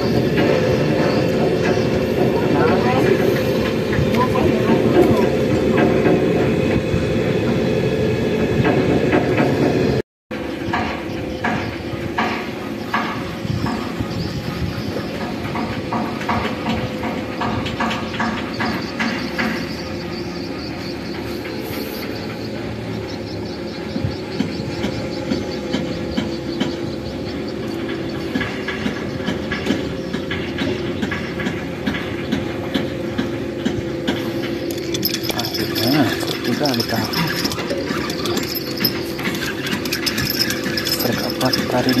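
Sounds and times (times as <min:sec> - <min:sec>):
rhythmic ticking clatter: 0:10.7 - 0:42.0.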